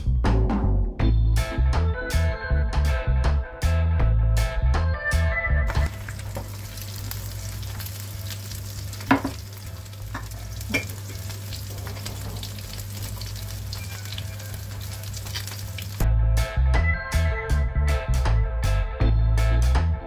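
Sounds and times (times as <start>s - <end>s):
fish sizzling in hot oil: 5.7s - 16.0s.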